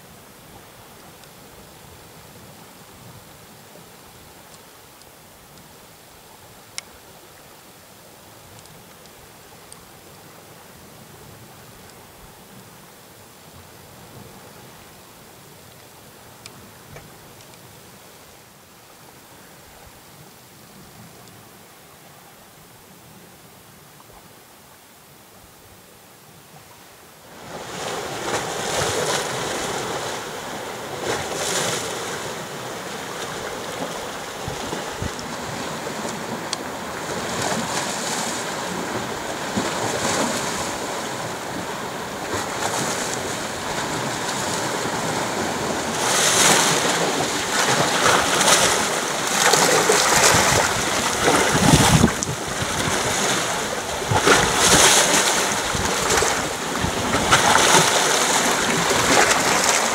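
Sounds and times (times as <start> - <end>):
waves splashing on rocky shore: 27.2 - 59.9.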